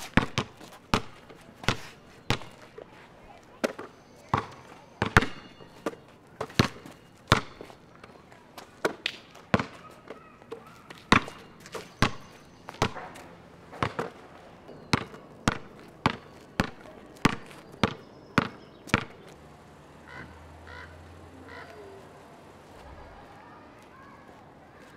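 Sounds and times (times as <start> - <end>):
basketball bouncing on concrete: 0.0 - 2.8, 3.5 - 19.3.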